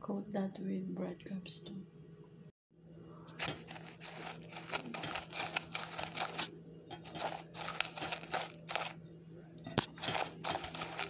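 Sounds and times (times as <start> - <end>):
breadcrumbs crunching and rustling: 3.4 - 9.0, 9.8 - 11.0.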